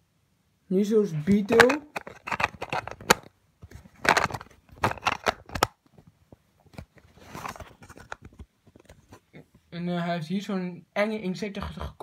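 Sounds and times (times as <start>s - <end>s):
handling noise rustling: 1.1s - 9.7s.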